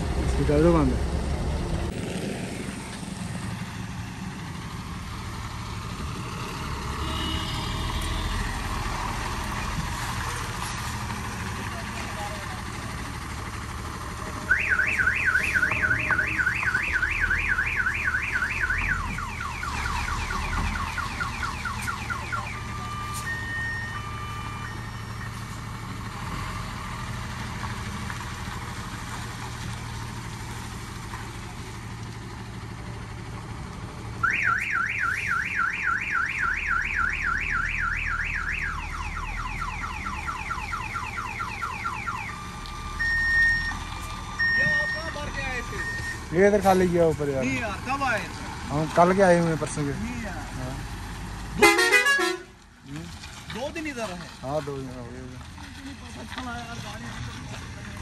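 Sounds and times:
low engine hum: 0:00.0 - 0:58.0
warbling vehicle alarm: 0:14.4 - 0:25.4, 0:34.2 - 0:46.4.

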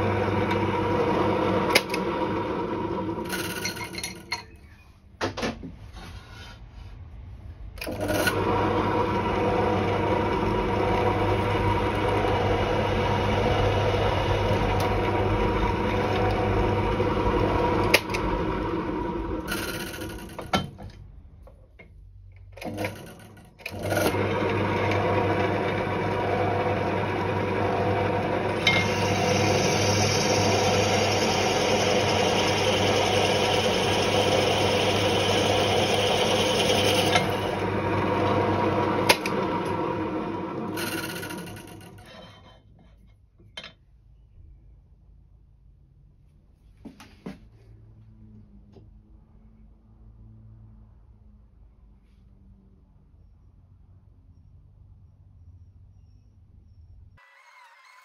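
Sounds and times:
drill press motor running: 0:00.0 - 0:04.3, 0:07.8 - 0:20.5, 0:22.6 - 0:42.2.

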